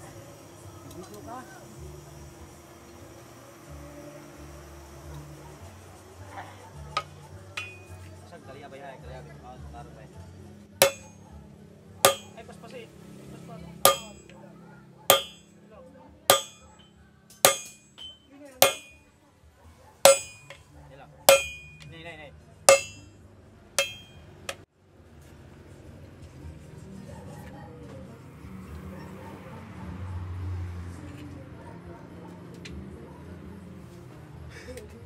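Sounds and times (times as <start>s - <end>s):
hammer striking steel on anvil: 7.0s - 8.0s, 10.8s - 11.2s, 12.0s - 12.5s, 13.8s - 14.4s, 15.1s - 15.6s, 16.3s - 19.1s, 20.0s - 20.7s, 21.3s - 21.9s, 22.7s - 23.2s, 23.8s - 24.6s.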